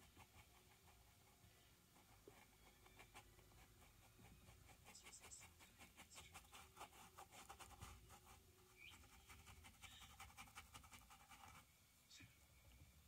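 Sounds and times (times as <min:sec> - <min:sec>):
paintbrush scratching on canvas: 0:00.0 - 0:11.7.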